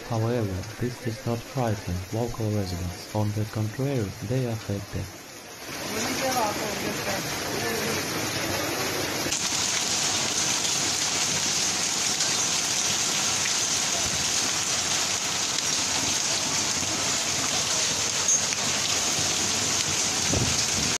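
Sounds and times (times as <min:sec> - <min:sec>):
hail and rain falling: 0:05.5 - 0:21.0.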